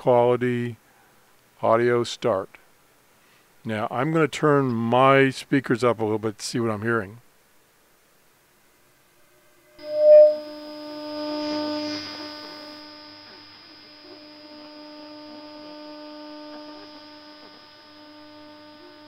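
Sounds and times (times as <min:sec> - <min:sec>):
steady radio jamming tone: 0:09.8 - 0:10.4
faint radio static: 0:09.8 - 0:19.0.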